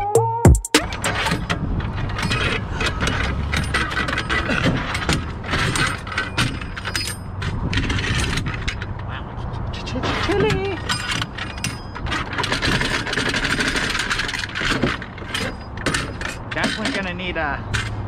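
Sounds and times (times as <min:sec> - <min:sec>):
music track: 0:00.0 - 0:01.1
small irregular clicks and rattles: 0:01.0 - 0:09.0, 0:10.2 - 0:18.0.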